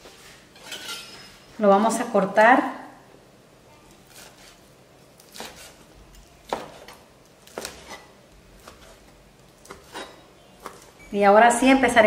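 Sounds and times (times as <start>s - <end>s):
knife slicing chicken: 4.0s - 4.6s, 5.2s - 5.8s, 6.4s - 9.0s.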